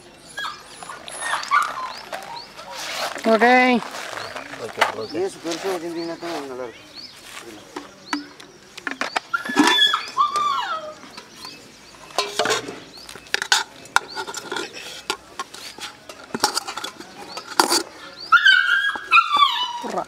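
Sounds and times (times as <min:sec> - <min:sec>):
metal spoon scraping metal pot: 0:11.4 - 0:17.9.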